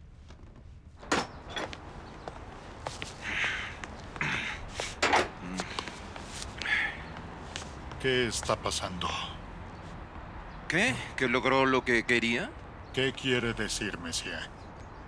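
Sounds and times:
rustling of people moving: 0:00.0 - 0:10.2.

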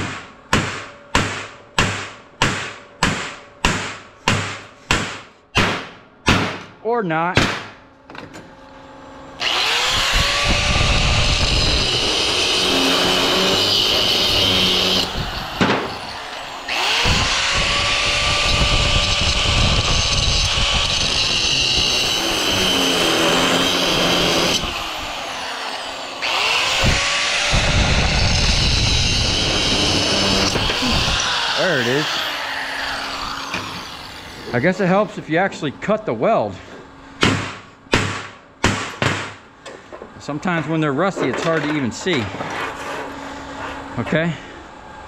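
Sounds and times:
power tool cutting steel: 0:09.4 - 0:35.1.

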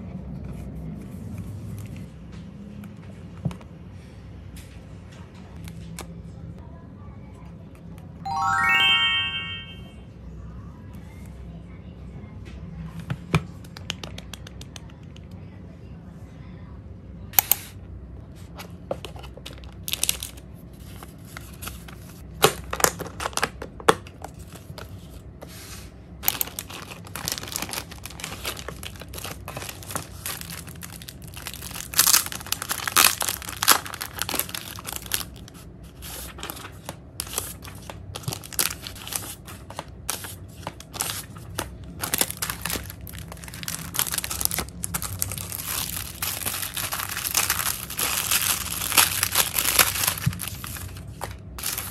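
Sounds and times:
plastic packaging crinkling and tearing: 0:19.5 - 0:20.4, 0:26.2 - 0:51.9.

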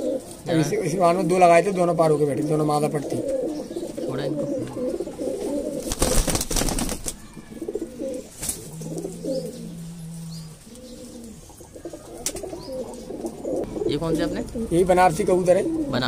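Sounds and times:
pigeons cooing: 0:00.0 - 0:16.0
pigeons flapping wings: 0:05.8 - 0:07.2.

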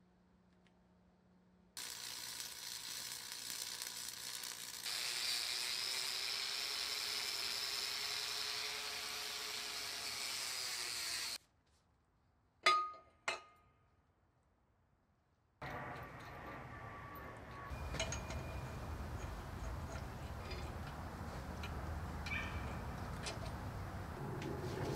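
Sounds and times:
angle grinder grinding metal: 0:01.8 - 0:11.4
welding arc crackling: 0:01.8 - 0:11.4
ringing metal clinks: 0:17.7 - 0:20.6, 0:22.2 - 0:23.1.

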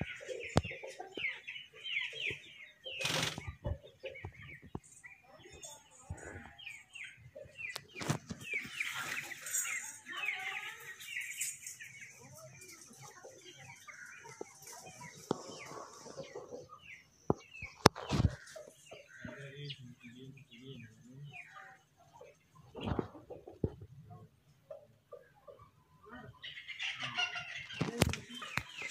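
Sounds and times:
parakeets chattering: 0:00.0 - 0:21.9.

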